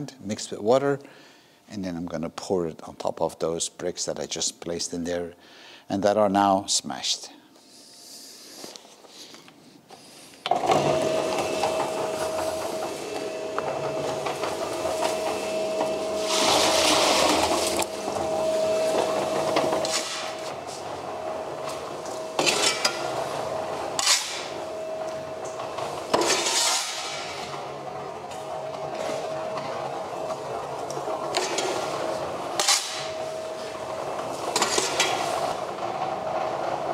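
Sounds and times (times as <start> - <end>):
cement mixer humming: 10.4 - 36.9
shovel scrapes: 10.9 - 20.9, 21.7 - 27.6, 31.3 - 35.6.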